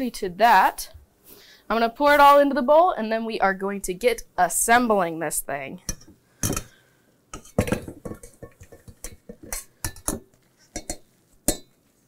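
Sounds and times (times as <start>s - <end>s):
metal colander clanking on bowl: 10.8s - 11.7s.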